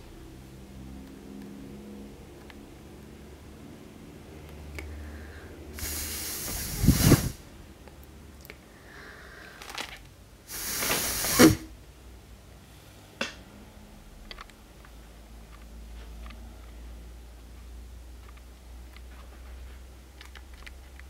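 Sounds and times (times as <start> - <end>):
person blowing breathy puffs: 5.3 - 7.4, 10.5 - 11.7.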